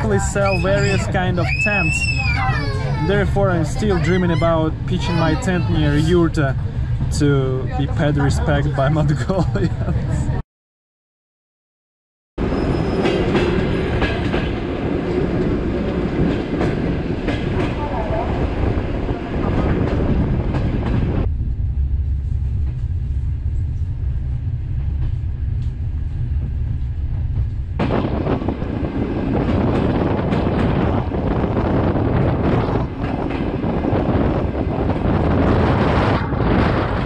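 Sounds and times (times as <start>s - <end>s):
rush of wind: 0.0s - 10.4s, 12.4s - 37.0s
train wheels clacking over rails: 12.7s - 18.1s.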